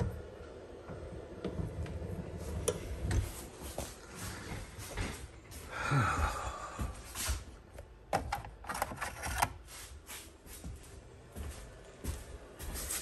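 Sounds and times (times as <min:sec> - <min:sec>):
footsteps on hard floor: 0:03.2 - 0:07.4, 0:10.4 - 0:13.0.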